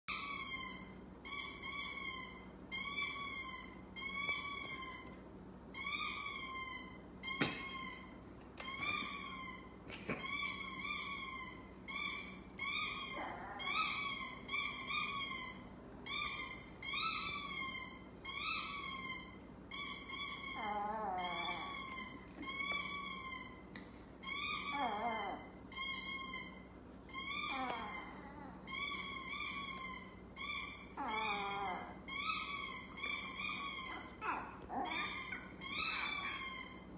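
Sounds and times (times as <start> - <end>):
small dog howling: 20.6 - 21.8, 24.5 - 25.5, 31.0 - 32.0, 33.1 - 36.5.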